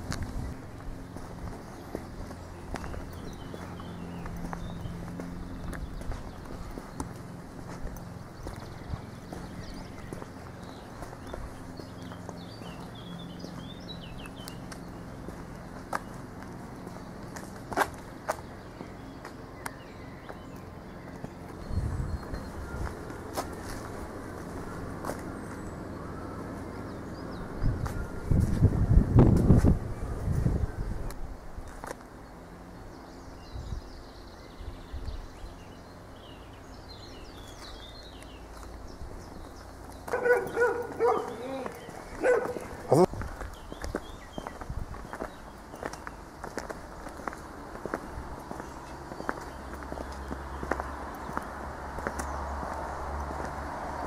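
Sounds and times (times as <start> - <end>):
footsteps on asphalt: 0.0 - 54.0
songbirds chirping: 0.0 - 54.0
dog barking loudly: 40.1 - 43.0.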